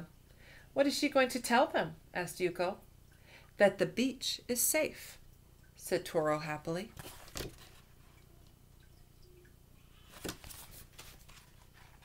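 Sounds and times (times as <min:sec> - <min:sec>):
low room hum: 0:00.0 - 0:12.0
book pages turning: 0:06.9 - 0:08.0, 0:10.0 - 0:12.0.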